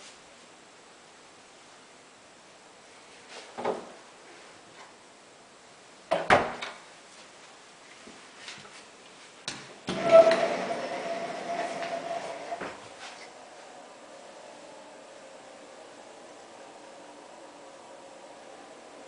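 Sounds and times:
sliding door rolling rumble: 9.8s - 19.0s
door rattle: 9.9s - 12.8s.

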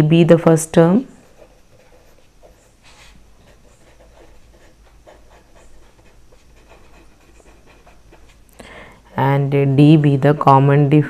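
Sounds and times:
pen scratching on paper: 1.1s - 8.5s, 9.5s - 11.0s.

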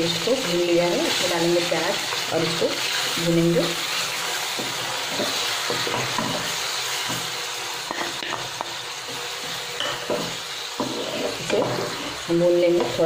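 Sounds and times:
onions sizzling in hot oil: 0.0s - 13.0s
spatula scraping and tapping pan: 4.5s - 13.0s.

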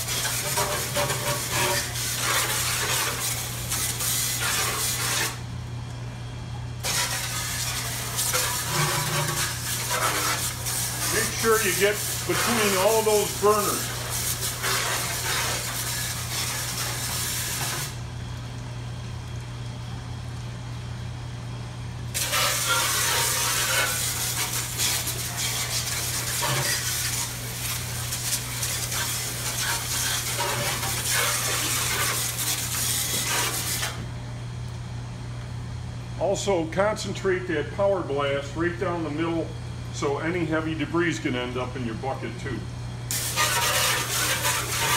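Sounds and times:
hose spray hissing on metal: 0.0s - 5.4s, 6.8s - 18.0s, 22.2s - 34.0s, 43.1s - 44.9s
low steady hum: 17.9s - 28.1s.

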